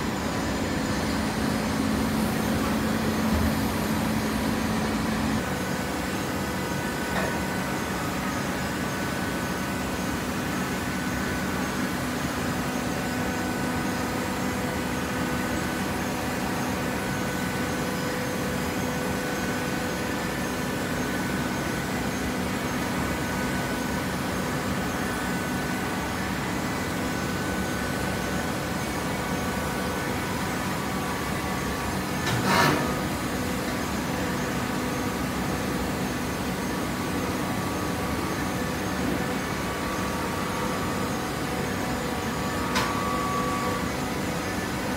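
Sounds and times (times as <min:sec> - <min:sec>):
baler machine hum: 0:00.0 - 0:13.4.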